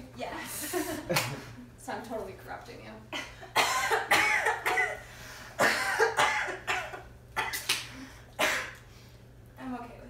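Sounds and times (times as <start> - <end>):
person coughing: 3.5 - 5.0, 5.6 - 7.7, 8.4 - 8.8.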